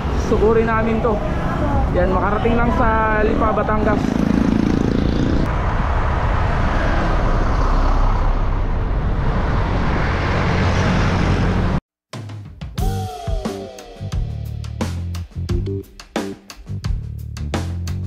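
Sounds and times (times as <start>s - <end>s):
road traffic: 0.0s - 11.8s
wind rushing on microphone: 0.0s - 11.8s.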